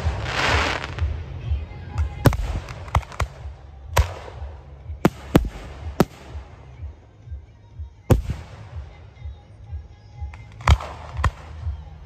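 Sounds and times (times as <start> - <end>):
low rumble: 0.0 - 7.4
music playing: 0.0 - 12.0.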